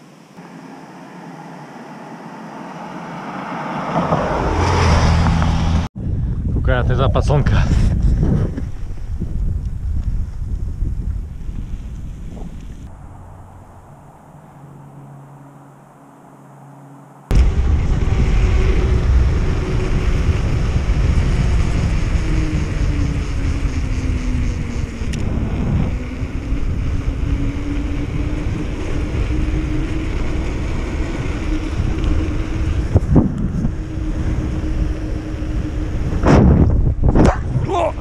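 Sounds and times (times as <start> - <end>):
tyres rolling on asphalt: 0.0 - 5.9, 17.3 - 36.9
wind rushing over microphone: 0.8 - 15.1, 17.2 - 38.0.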